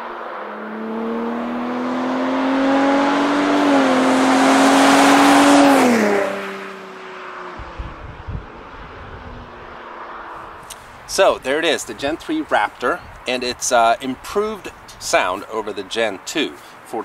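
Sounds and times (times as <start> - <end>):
truck engine accelerating past: 0.0 - 6.8.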